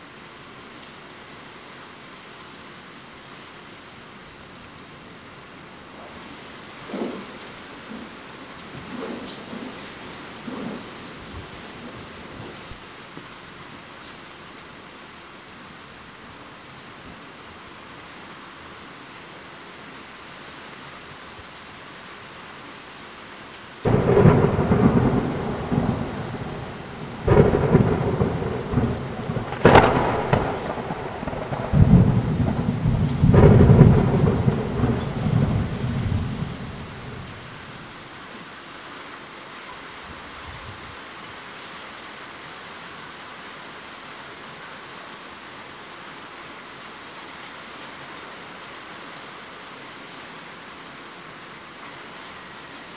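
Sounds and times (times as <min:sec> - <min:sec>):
steady rain: 0:00.0 - 0:52.9
thunder cracks and rumbling: 0:23.8 - 0:37.6.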